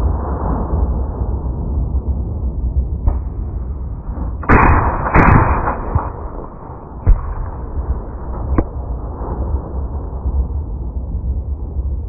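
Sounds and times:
rifle full-auto burst: 4.4 - 8.5
sharp light gunshot crack: 4.4 - 8.7
rifle single shot: 4.4 - 8.8.

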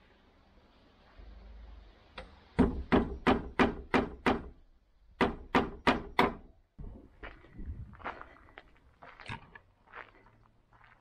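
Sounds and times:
hammer knocking nails into wood: 2.6 - 4.6, 5.2 - 6.5.

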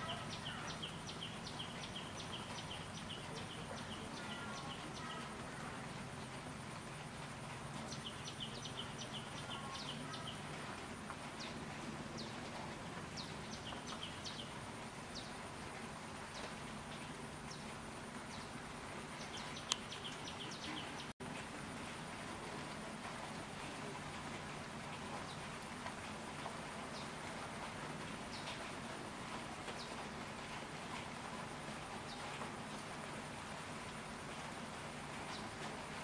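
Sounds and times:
steady hiss: 0.0 - 36.0.

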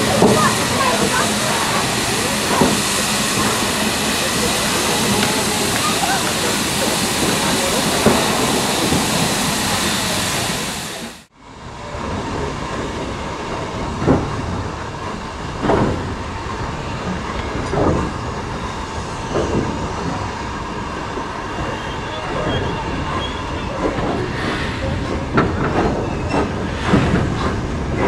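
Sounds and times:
steam hissing: 0.0 - 11.3
train rumbling past: 0.0 - 28.0.

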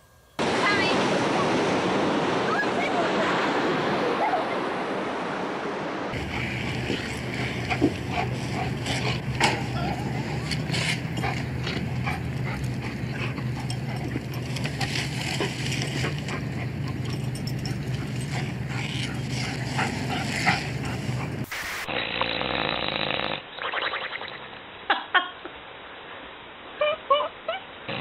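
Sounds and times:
low hum: 4.6 - 21.5
tree branches scraping on asphalt: 6.2 - 21.5
muffled hiss: 24.4 - 28.0.

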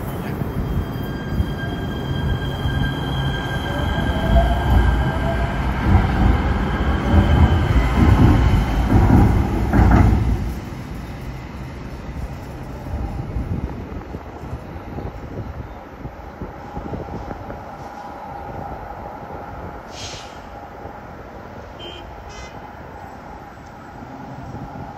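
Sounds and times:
train wheels rumbling on rail: 0.0 - 24.9
high wheel squeal: 0.2 - 5.6.

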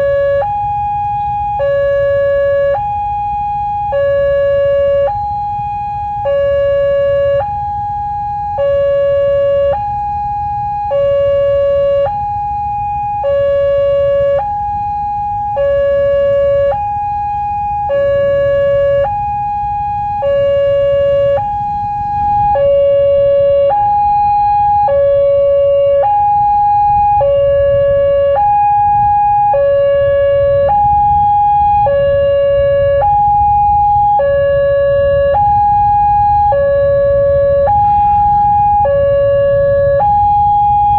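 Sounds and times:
level crossing alarm: 0.0 - 40.9
low rumble: 25.0 - 40.9.

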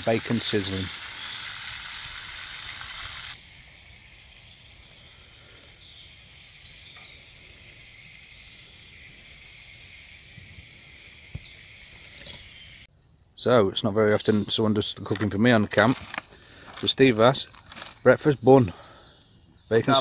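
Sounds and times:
bacon sizzling in a frying pan: 0.0 - 3.4
birds singing: 0.0 - 20.0
short bird chirps: 0.9 - 12.9.

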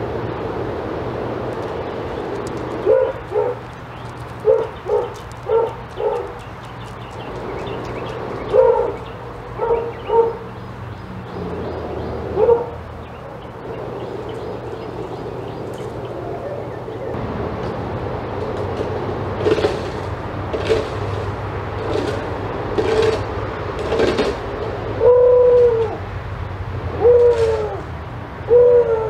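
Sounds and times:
dog barking: 2.8 - 3.6, 4.4 - 6.4, 8.4 - 10.5, 12.3 - 12.8.

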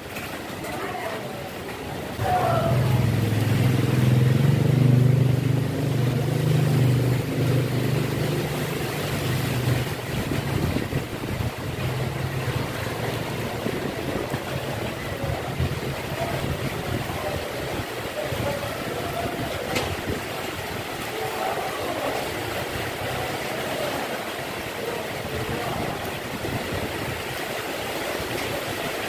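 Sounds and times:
rain falling on street and cars: 0.0 - 29.0
vehicle engine running: 2.2 - 17.4.

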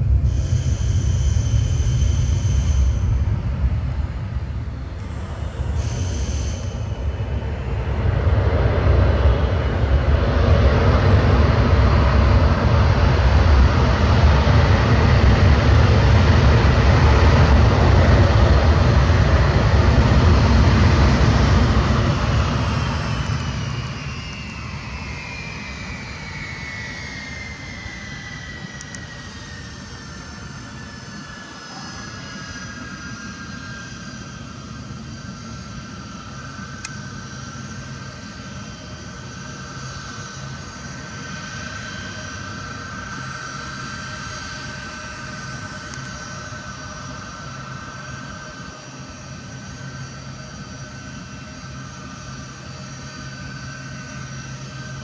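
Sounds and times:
falling jet whine: 0.0 - 55.0
jet engines roaring: 0.0 - 55.0.

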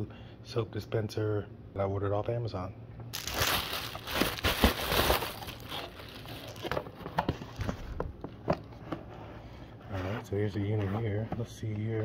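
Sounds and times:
plastic bubble mailer crinkling: 3.1 - 7.0.

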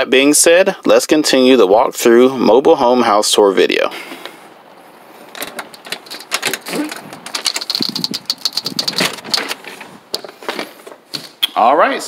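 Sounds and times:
door latch clicks and knocks: 5.4 - 9.5
door squeak: 5.5 - 7.2.

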